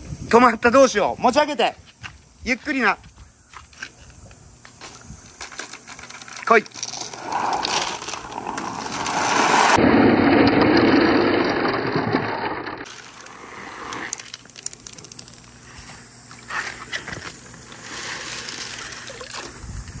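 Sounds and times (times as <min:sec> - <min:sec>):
marbles clattering and splashing: 0:05.5 - 0:15.5.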